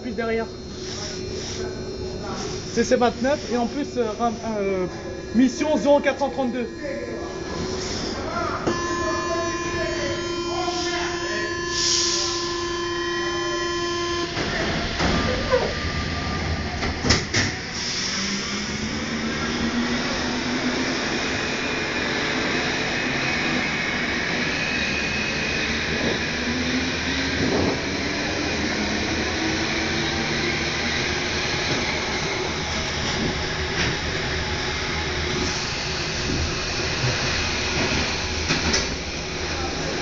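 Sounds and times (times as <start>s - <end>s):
steady tone: 0.0s - 14.4s
traction motors whining: 0.0s - 40.0s.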